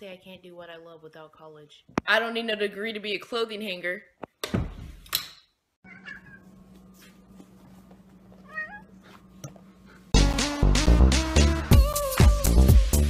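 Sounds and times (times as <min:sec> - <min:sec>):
cat meowing: 0:05.8 - 0:06.4, 0:08.4 - 0:09.0
dance music: 0:10.2 - 0:13.0.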